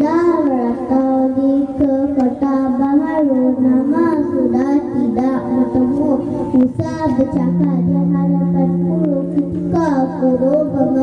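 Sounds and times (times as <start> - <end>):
girl singing: 0.0 - 11.0
backing music with held notes: 3.5 - 11.0.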